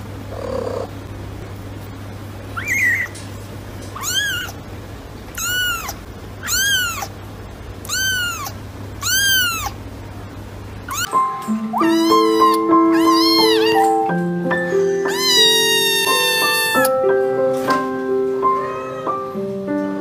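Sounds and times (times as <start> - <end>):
kitten meowing: 2.6 - 3.2, 3.9 - 4.6, 5.3 - 7.1, 7.8 - 9.8, 10.9 - 14.2, 14.8 - 17.0, 18.5 - 19.3.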